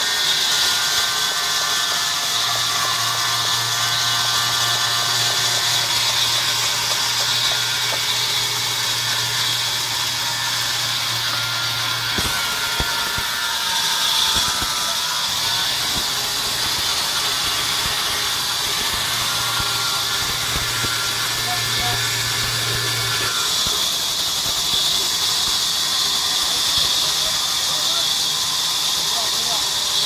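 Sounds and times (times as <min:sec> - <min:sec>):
low motor hum: 0:15.7 - 0:23.2.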